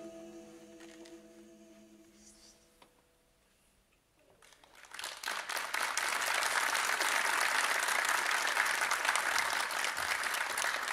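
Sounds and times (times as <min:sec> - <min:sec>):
large audience applauding: 0:04.4 - 0:10.9.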